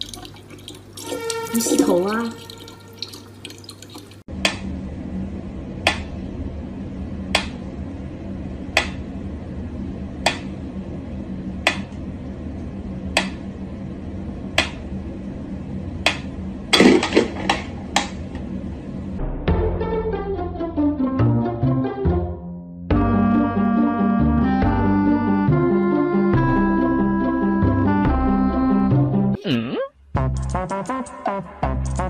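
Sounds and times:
low hum: 0:04.2 - 0:20.7.

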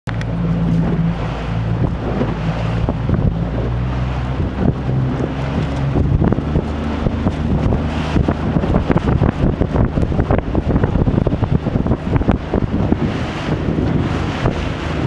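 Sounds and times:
boat engine humming: 0:00.0 - 0:15.0
wind buffeting microphone: 0:00.1 - 0:15.0.

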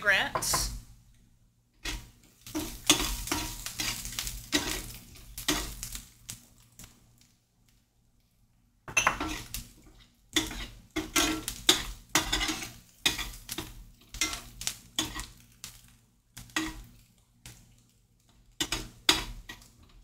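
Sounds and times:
spoon scraping a frying pan: 0:01.8 - 0:06.0, 0:08.9 - 0:15.4, 0:16.4 - 0:16.9, 0:18.6 - 0:19.7.

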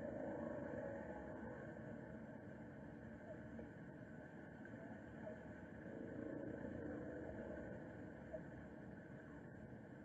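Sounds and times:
faint low hiss and rumble: 0:00.0 - 0:10.0.

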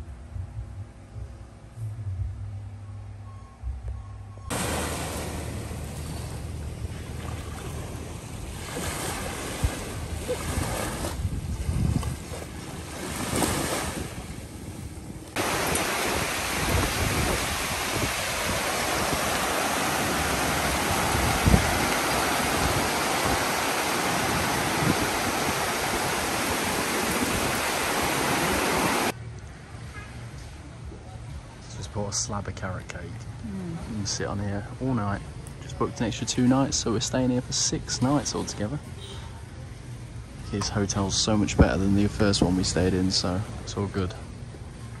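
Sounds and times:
sea waves washing in: 0:04.5 - 0:29.2
loud steady rushing noise: 0:14.4 - 0:29.2.

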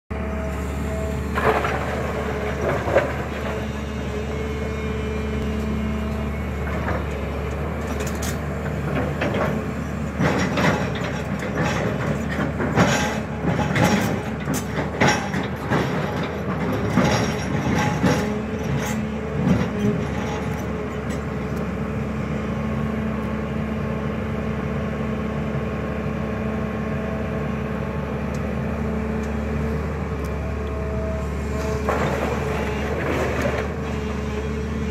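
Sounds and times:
excavator diesel engine running: 0:00.1 - 0:34.9.

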